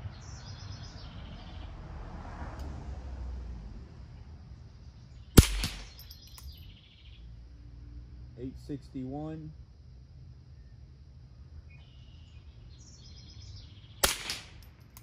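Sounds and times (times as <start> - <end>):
birds chirping: 0.0 - 1.8, 4.7 - 7.3, 11.7 - 15.0
rifle shot: 5.4 - 6.3, 14.0 - 14.7.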